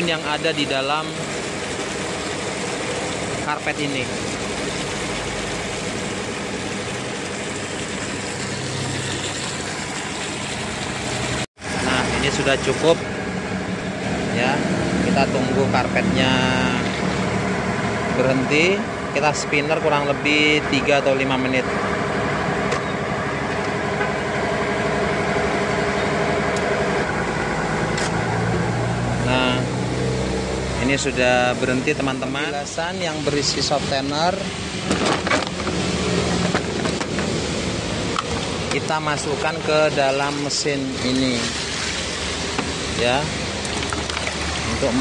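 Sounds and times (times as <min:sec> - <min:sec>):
tap water running into bucket: 0:00.0 - 0:13.0, 0:34.7 - 0:45.0
washing machine spinning: 0:00.0 - 0:20.1, 0:21.5 - 0:45.0.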